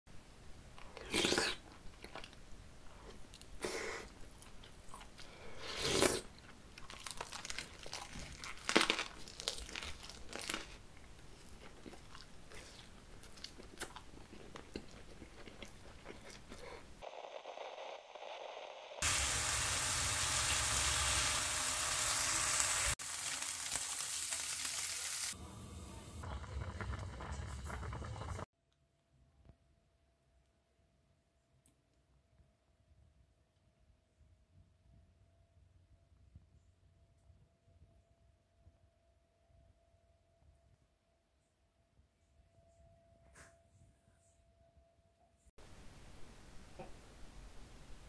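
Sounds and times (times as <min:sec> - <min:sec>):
chewing: 0:00.8 - 0:17.0
crunchy bites: 0:06.8 - 0:10.8
meat sizzling in a frying pan: 0:18.2 - 0:25.4.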